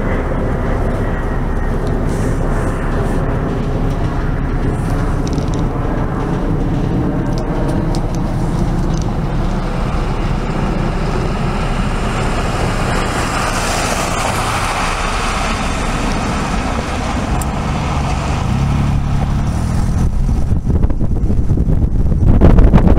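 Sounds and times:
passing train: 0.0 - 22.9
passing vehicles rumbling: 0.0 - 22.9
car driving by: 7.9 - 21.0.

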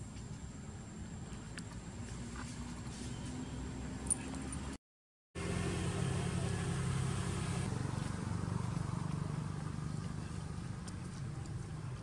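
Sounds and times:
vehicle engine humming: 5.4 - 12.0.

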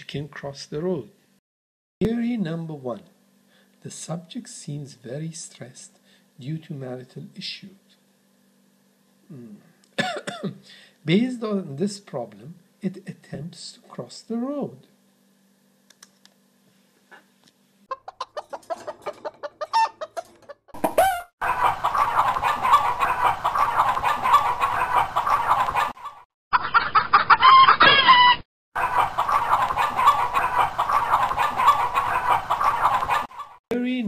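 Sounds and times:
chicken clucking: 17.9 - 33.6.

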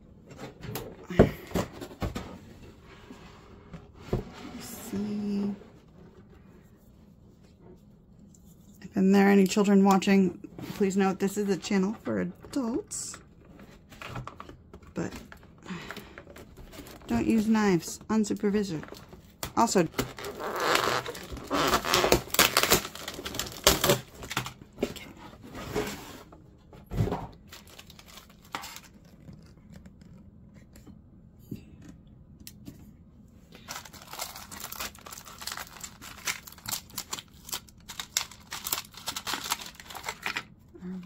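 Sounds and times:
plastic packaging tearing and crinkling: 18.8 - 24.7, 27.4 - 30.2, 33.6 - 40.6.

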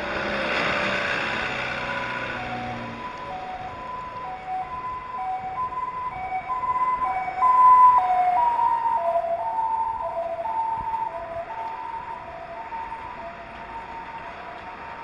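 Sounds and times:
two-tone emergency siren: 0.0 - 15.0.

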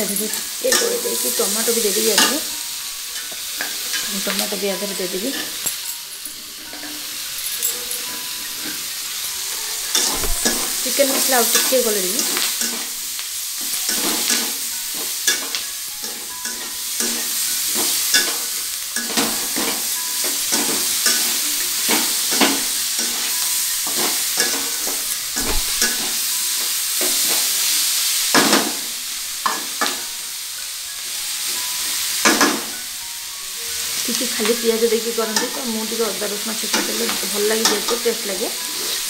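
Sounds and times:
vegetables sizzling in oil: 0.0 - 39.0
metal spatula scraping pan: 0.3 - 13.0.

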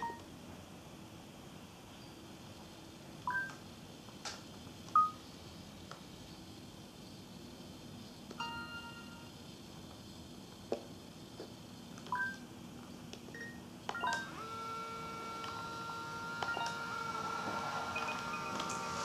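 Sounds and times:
steady held tone: 14.2 - 19.0.

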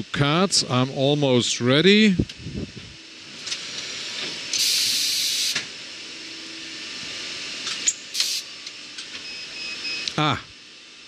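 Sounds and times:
paper cutter hum: 4.2 - 5.6
short hiss of air: 4.6 - 5.6, 8.1 - 8.5.

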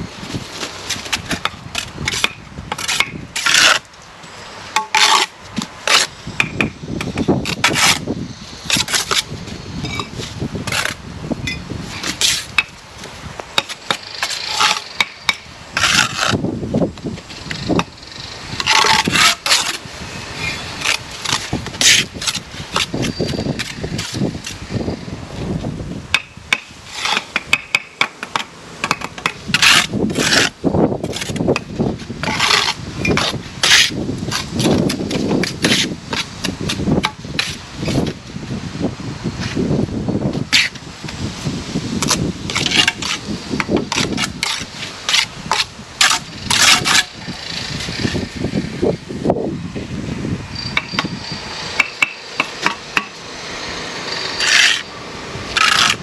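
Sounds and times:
trowel scraping mortar: 0.9 - 3.9, 4.8 - 6.2, 7.1 - 11.0, 11.9 - 12.6, 13.6 - 16.4, 17.4 - 24.9, 26.9 - 27.4, 29.0 - 38.2, 40.5 - 40.8, 42.0 - 48.4, 54.1 - 54.9, 55.5 - 56.0
trowel tapping bricks: 1.2 - 3.8, 26.1 - 30.5, 51.8 - 53.2.

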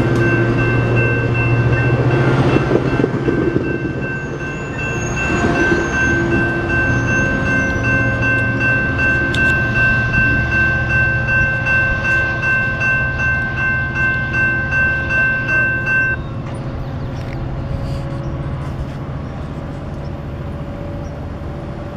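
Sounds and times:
crossing warning bell ringing: 0.0 - 18.5
train rumble: 0.0 - 21.9.

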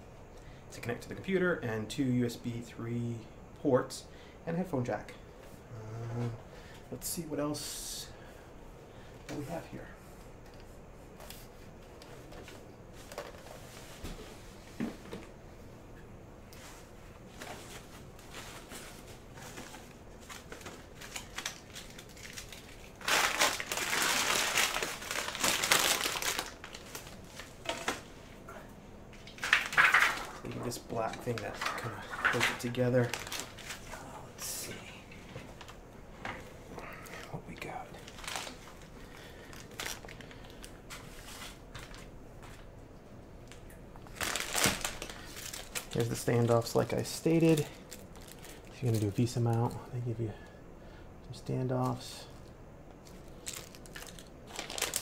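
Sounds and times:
plastic wrap crinkling: 17.3 - 28.1, 29.1 - 34.7, 37.2 - 42.7, 43.4 - 49.8, 53.0 - 55.0.

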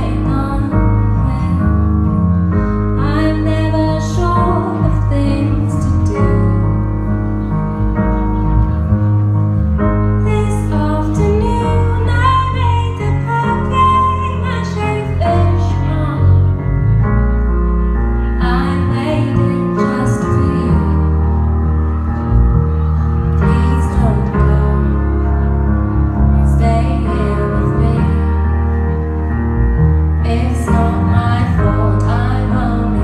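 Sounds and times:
woman singing into a microphone: 0.0 - 2.2, 2.9 - 7.1, 10.2 - 16.6, 18.4 - 21.5, 23.4 - 25.5, 26.3 - 28.8, 30.2 - 33.0
low bass notes: 0.0 - 33.0
piano accompaniment: 0.0 - 33.0.

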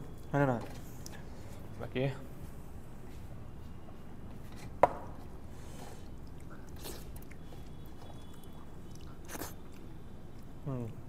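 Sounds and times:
faint chewing and eating: 3.1 - 11.0.

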